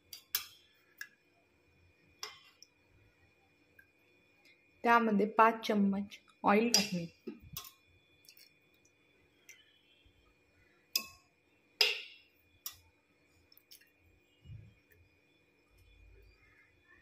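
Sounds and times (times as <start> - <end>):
faint steady hum: 0.0 - 17.0
metal utensil clinking on pot: 6.7 - 7.7, 11.8 - 12.8.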